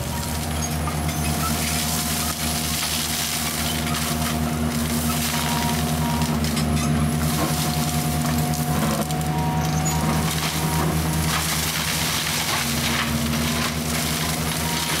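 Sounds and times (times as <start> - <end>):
mulcher engine drone: 0.0 - 15.0
crackle of shredded brush: 7.2 - 15.0.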